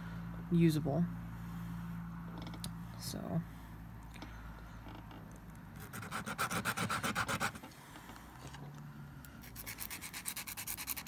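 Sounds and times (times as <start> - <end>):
nail file scraping shell: 5.8 - 7.6, 9.4 - 11.0.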